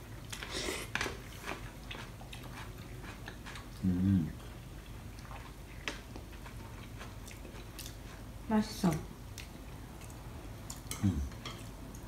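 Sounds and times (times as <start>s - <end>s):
person chewing: 0.1s - 8.3s, 9.3s - 12.0s
person humming: 3.8s - 4.3s, 10.9s - 11.3s.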